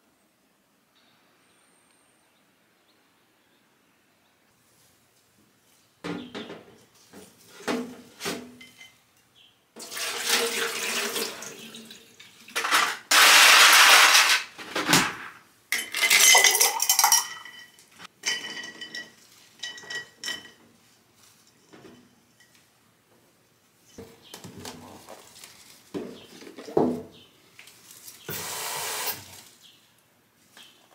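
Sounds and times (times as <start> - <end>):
tap water running: 9.8 - 13.4, 28.3 - 29.5
ceramic vase clinking on sink: 15.8 - 20.6.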